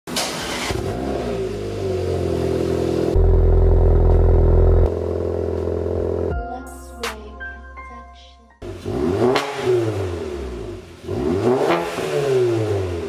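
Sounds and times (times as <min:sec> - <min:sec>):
car engine starting and idling: 0:00.1 - 0:06.4, 0:08.6 - 0:13.0
low exhaust drone: 0:01.0 - 0:06.4.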